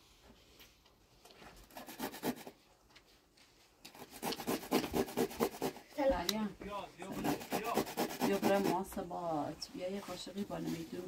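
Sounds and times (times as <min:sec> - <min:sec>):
vegetable grating on hand grater: 0:01.7 - 0:02.5, 0:04.0 - 0:05.8, 0:07.1 - 0:08.9.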